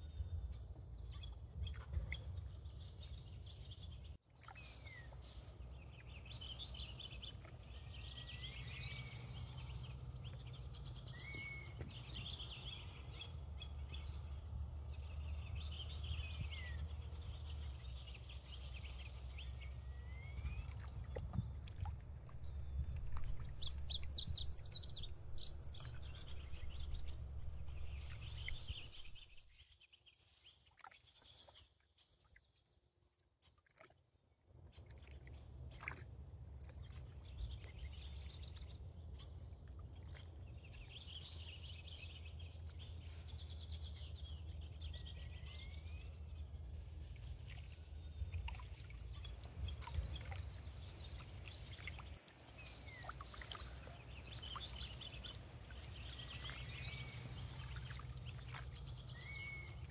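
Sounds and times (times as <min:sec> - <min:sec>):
water trickling from paddle strokes: 0:00.0 - 0:03.4, 0:04.2 - 0:10.6, 0:20.5 - 0:29.5, 0:30.5 - 0:40.4, 0:46.9 - 0:59.9
small birds chirping: 0:20.2 - 0:29.6, 0:40.1 - 0:59.9
steady low rumble: 0:21.4 - 0:29.4.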